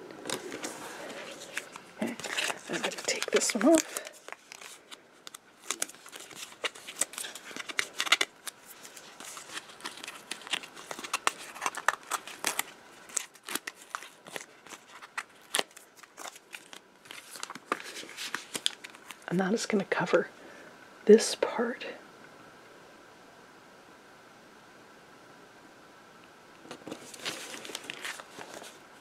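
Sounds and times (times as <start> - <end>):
paper crackling and rustling: 0.0 - 19.3, 26.6 - 29.0
liner peeled off tape: 0.2 - 19.2.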